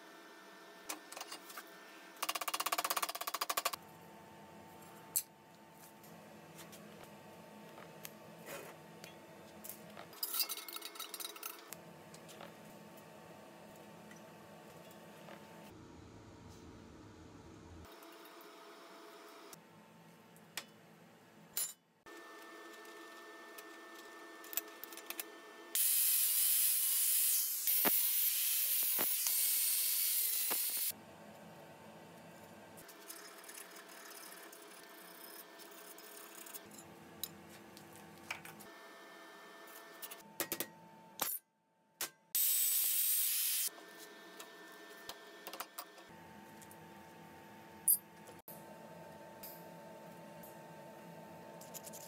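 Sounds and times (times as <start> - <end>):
shop hum: 0.0 - 52.0
steel parts clinking: 10.1 - 11.7.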